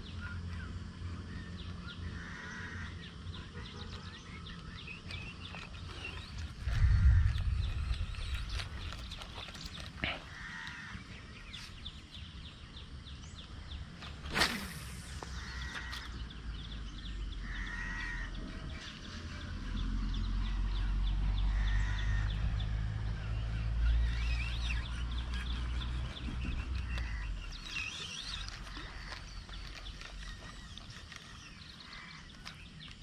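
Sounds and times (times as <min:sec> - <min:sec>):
bird calls: 0:00.0 - 0:33.0
low rumble: 0:04.5 - 0:13.9.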